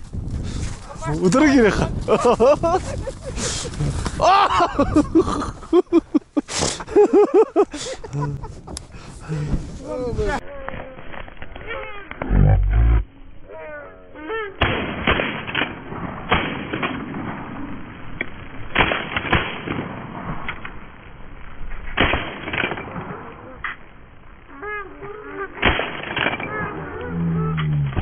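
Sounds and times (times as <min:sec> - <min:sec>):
shotgun shots: 0:14.6 - 0:17.5, 0:18.7 - 0:20.3, 0:22.0 - 0:23.0.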